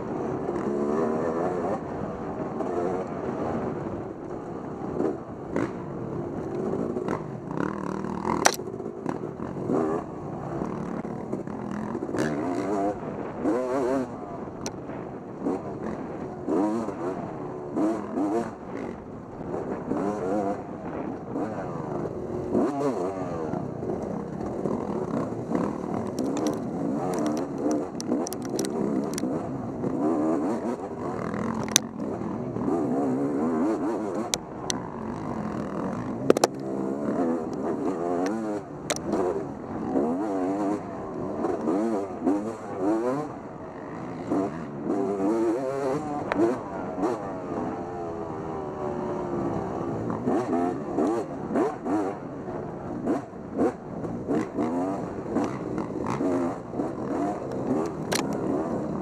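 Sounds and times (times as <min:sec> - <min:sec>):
motorcycle engine revving: 0:00.0 - 0:59.0
sharp clicks and knocks: 0:08.2 - 0:08.7, 0:25.9 - 0:29.4, 0:31.2 - 0:32.1, 0:36.2 - 0:36.7.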